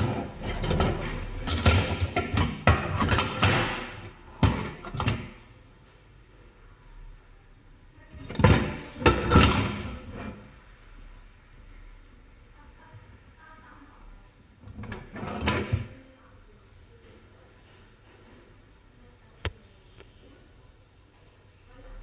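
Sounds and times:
metal potato ricer clinking: 0.0 - 5.4.

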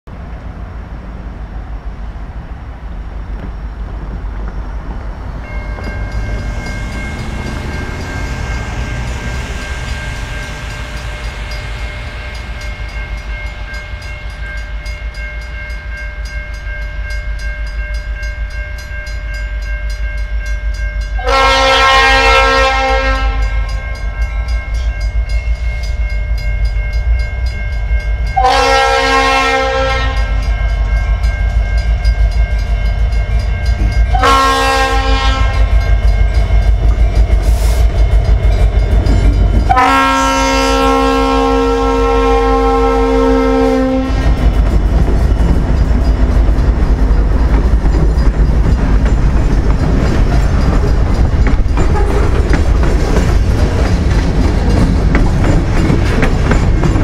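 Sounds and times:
freight train rumble: 0.0 - 57.0
locomotive air horn blasts: 21.2 - 23.9, 28.4 - 30.5, 34.1 - 35.9, 39.7 - 44.4.

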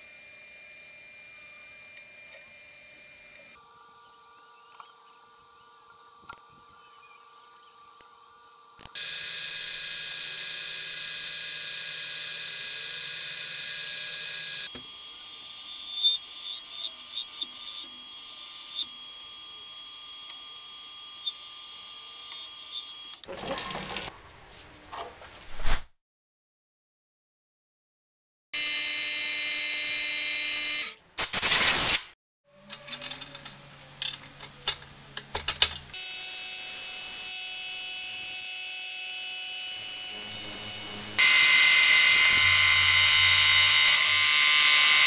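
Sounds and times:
metal lathe running: 40.0 - 45.0.

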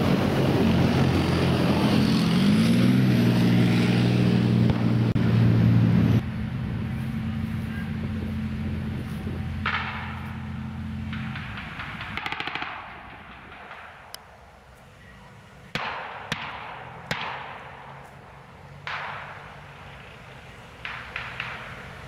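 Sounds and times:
machine-gun fire: 11.0 - 14.1
echoing single gunshots: 15.7 - 19.7.

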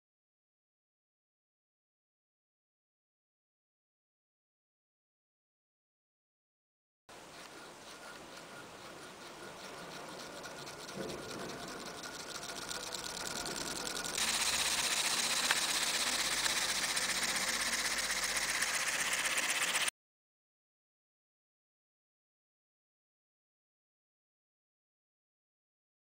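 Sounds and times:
model air engine chattering: 7.3 - 19.9.

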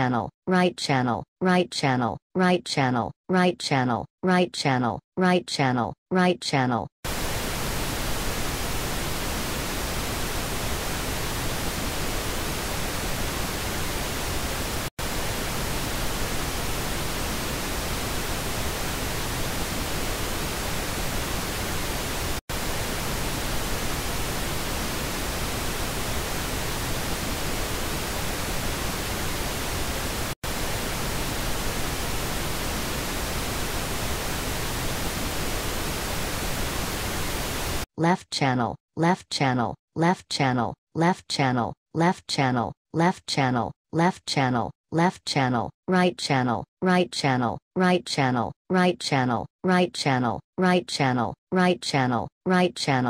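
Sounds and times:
pink noise hiss: 7.1 - 37.9.

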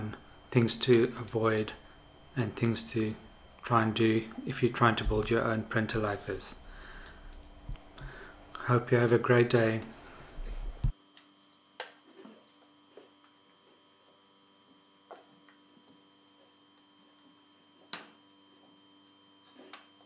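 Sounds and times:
three d printer humming: 0.0 - 10.9
sharp clicks: 7.0 - 7.9.

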